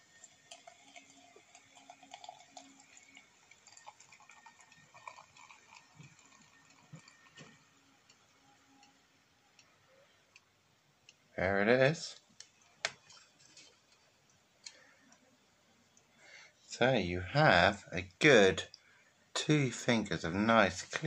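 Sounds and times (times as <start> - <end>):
beer pouring into a glass: 0.0 - 8.4
small ticks and crackles: 12.2 - 15.2.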